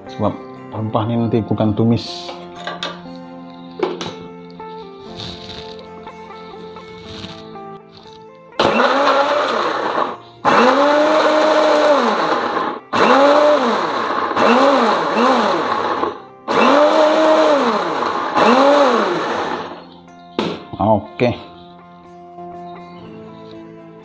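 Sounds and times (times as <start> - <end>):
blender motor pulsing: 8.6 - 19.9.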